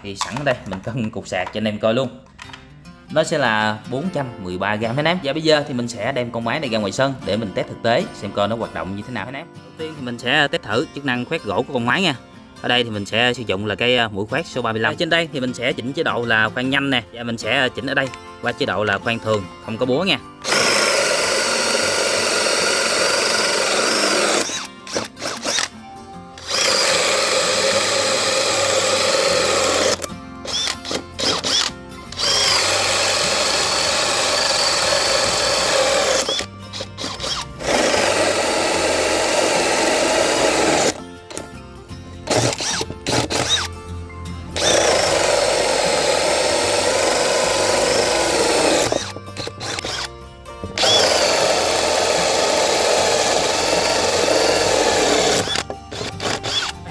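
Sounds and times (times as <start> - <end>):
cordless drill cutting wood: 20.4 - 25.7, 26.4 - 41.0, 42.3 - 43.8, 44.6 - 50.1, 50.8 - 56.8.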